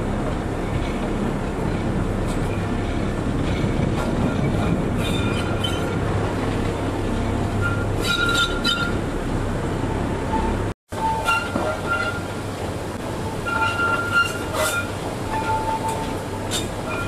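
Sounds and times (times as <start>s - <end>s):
train rumbling: 0.0s - 17.0s
high wheel squeal: 4.2s - 6.0s, 7.5s - 9.1s, 10.2s - 12.4s, 13.2s - 17.0s.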